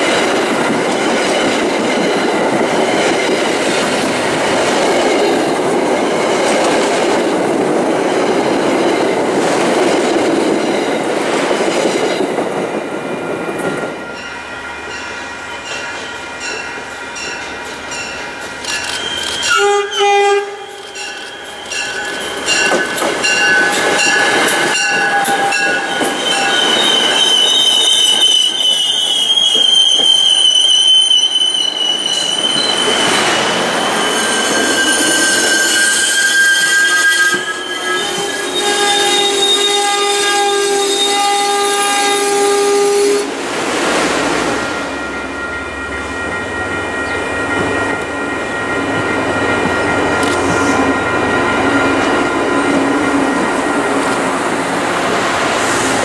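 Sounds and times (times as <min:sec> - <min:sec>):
train rolling rumble: 0:00.0 - 0:19.5, 0:20.5 - 0:36.2, 0:43.2 - 0:56.0
train wheels and brakes squealing: 0:12.2 - 0:43.3, 0:43.9 - 0:56.0
train horn blast: 0:19.0 - 0:21.0, 0:24.8 - 0:26.9, 0:34.1 - 0:43.4.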